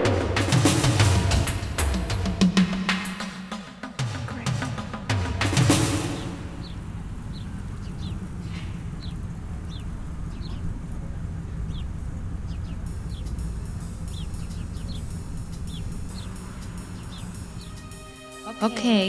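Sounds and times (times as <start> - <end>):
car road rumble: 4.0 - 17.8
bird chirping: 4.0 - 19.0
fast high ticking: 12.4 - 19.0.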